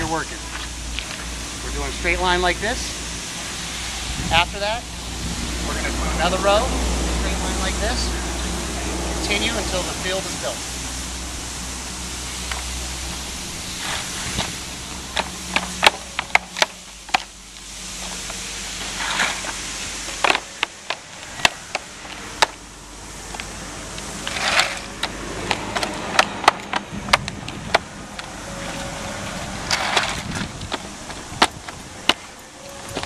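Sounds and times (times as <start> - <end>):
panel scraping on pavement: 13.6 - 17.3, 18.1 - 22.6, 24.0 - 33.0.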